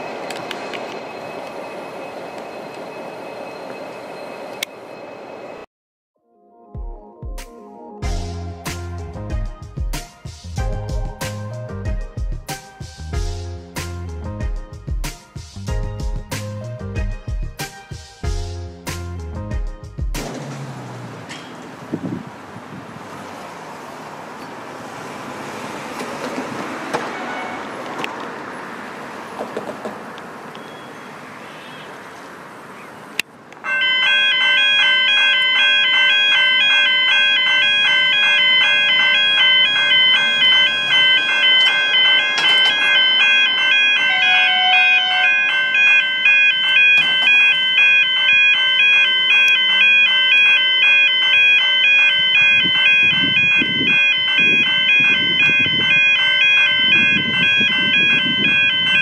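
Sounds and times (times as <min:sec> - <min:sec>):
level crossing warning bells: 0:00.0 - 0:05.7, 0:30.5 - 0:31.4, 0:33.5 - 0:59.0
wind: 0:00.0 - 0:05.7, 0:20.2 - 0:59.0.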